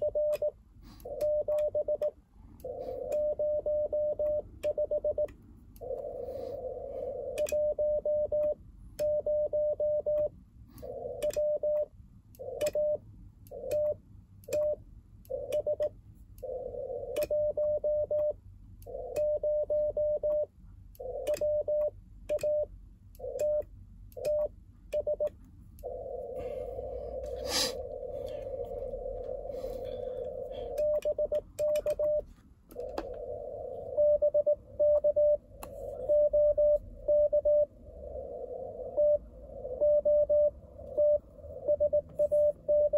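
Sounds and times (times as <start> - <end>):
morse code tone: 0.0 - 0.5, 3.0 - 5.3, 7.4 - 10.3, 17.2 - 18.4, 33.9 - 35.4, 36.0 - 37.7, 39.8 - 42.9.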